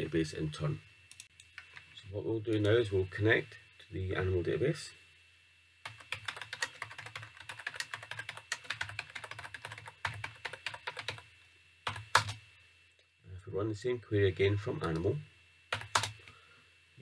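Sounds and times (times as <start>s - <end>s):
keyboard typing: 5.8s - 11.2s, 11.8s - 12.4s, 15.7s - 16.2s.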